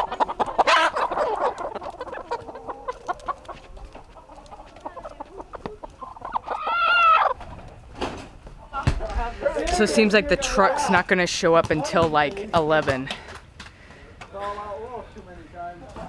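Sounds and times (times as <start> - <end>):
hen squawking: 0.0 - 7.4
hens clucking: 0.0 - 16.0.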